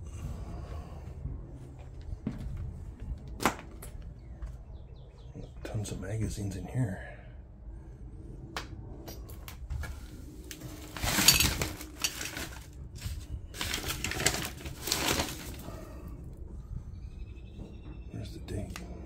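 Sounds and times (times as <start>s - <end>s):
small things clattering: 10.5s - 16.0s
paper rustling: 10.6s - 15.7s.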